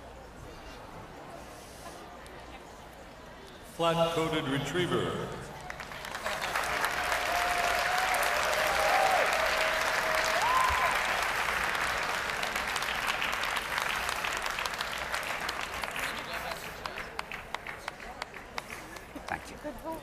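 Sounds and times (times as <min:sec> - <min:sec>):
audience applauding: 0:05.6 - 0:19.5.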